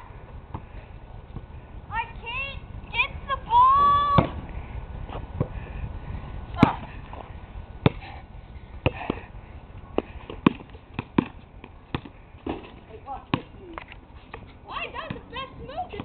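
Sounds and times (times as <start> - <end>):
wind rumble on microphone: 0.0 - 10.4
basketball bouncing on concrete: 7.8 - 8.1, 8.8 - 9.2, 10.0 - 16.0.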